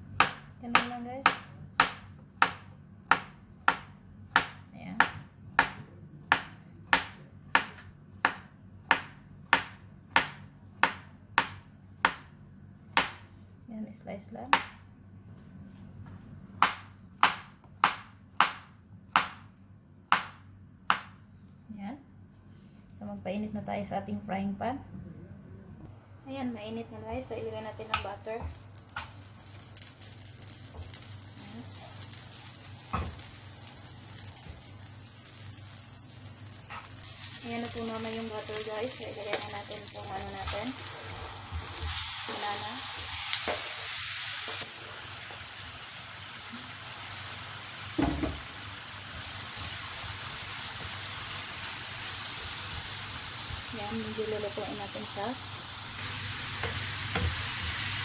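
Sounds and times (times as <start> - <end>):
butter sizzling in a pan: 27.8 - 58.0.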